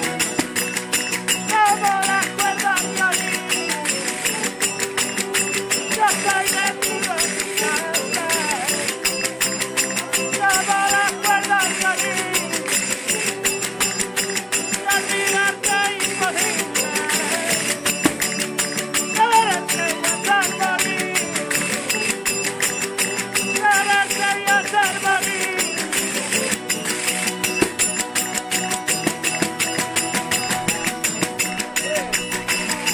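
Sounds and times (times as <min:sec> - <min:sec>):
acoustic guitars strumming: 0:00.0 - 0:32.9
tambourine rhythm: 0:00.0 - 0:32.9
man singing: 0:01.5 - 0:04.5, 0:05.9 - 0:09.0, 0:10.3 - 0:12.7, 0:14.8 - 0:17.8, 0:19.2 - 0:21.5, 0:23.6 - 0:26.4.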